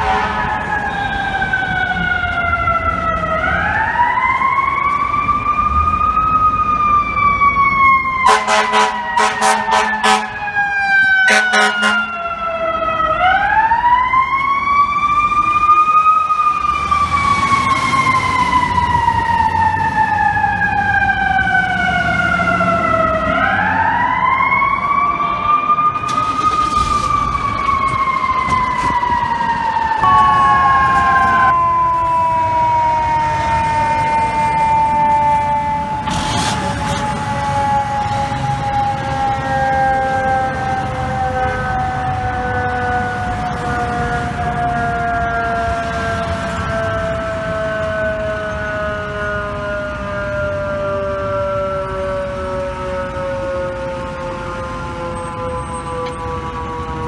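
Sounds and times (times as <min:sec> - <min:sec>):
air horn blasts: 0:00.0 - 0:01.3, 0:08.2 - 0:10.4, 0:11.3 - 0:12.2
fire engine mechanical siren: 0:00.0 - 0:57.0
steady siren tone: 0:00.0 - 0:57.0.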